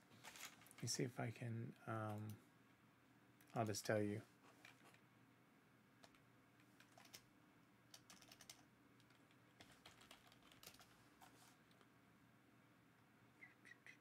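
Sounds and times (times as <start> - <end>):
faint keyboard typing: 1.7 - 2.4, 6.0 - 7.3, 7.9 - 11.9.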